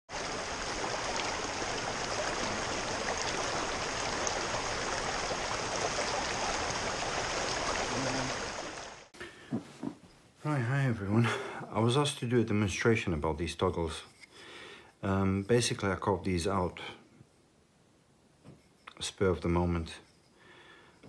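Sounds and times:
stream rushing over stones: 0.1s - 9.1s.

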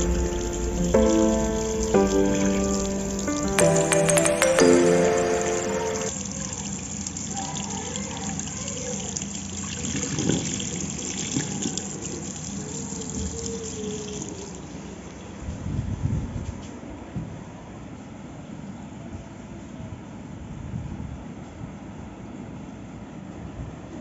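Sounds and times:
tap water running into basin: 0.0s - 14.8s.

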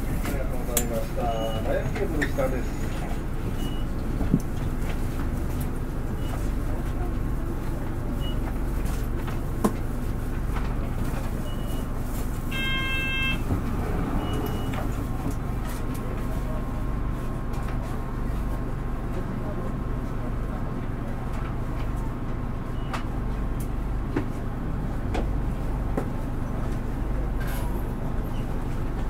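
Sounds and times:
bus diesel engine running: 0.0s - 29.0s
short electronic chime: 12.5s - 13.4s.

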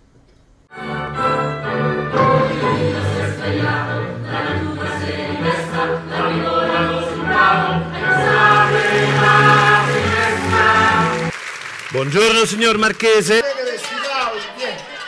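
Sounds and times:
chorus singing together: 1.2s - 11.3s.

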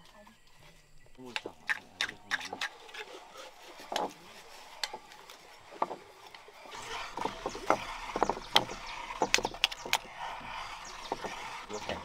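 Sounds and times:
juice splashing and sloshing: 1.4s - 12.0s
handling knocks and clicks: 3.9s - 5.2s.

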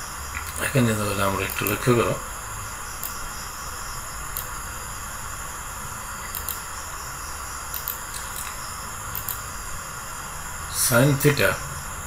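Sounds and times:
background hiss: 0.0s - 12.0s
faint clicks: 6.2s - 6.6s.

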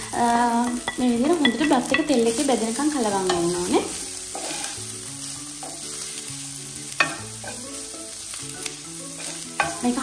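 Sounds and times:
rice sizzling in a pan: 0.0s - 10.0s
soft background music: 0.0s - 10.0s
spatula scraping a pan: 3.1s - 8.2s, 9.0s - 10.0s.

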